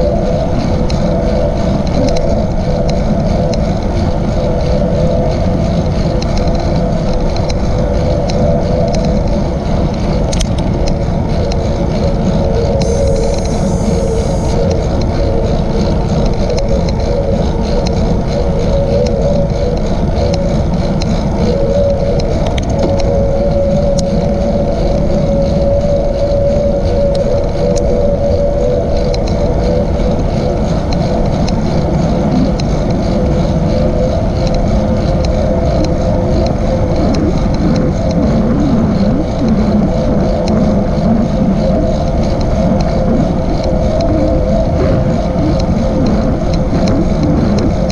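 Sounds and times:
bicycle riding hum: 0:00.0 - 0:47.9
wind on microphone: 0:00.0 - 0:47.9.

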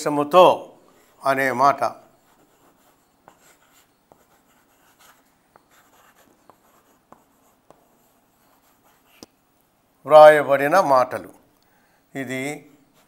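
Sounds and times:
chalk scratching on blackboard: 0:02.1 - 0:09.3
chalk tapping on board: 0:03.2 - 0:08.1.

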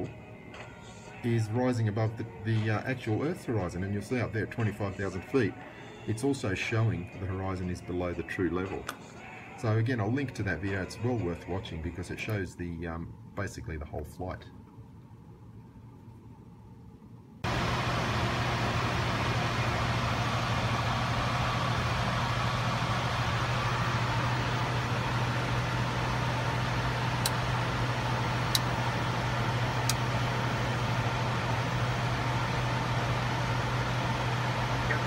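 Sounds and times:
low hum: 0:14.8 - 0:35.0
airflow rush in jet cockpit: 0:17.4 - 0:35.0.

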